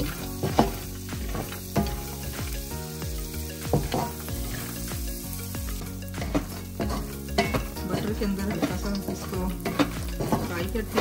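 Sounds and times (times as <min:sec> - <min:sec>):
spatula scraping a pan: 0:00.0 - 0:02.6, 0:05.6 - 0:11.0
nuts sizzling in a pan: 0:00.0 - 0:11.0.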